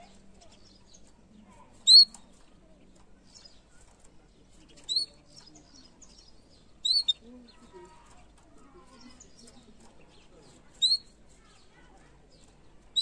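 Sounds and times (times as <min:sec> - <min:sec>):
faint canary chirps: 0:00.0 - 0:13.0.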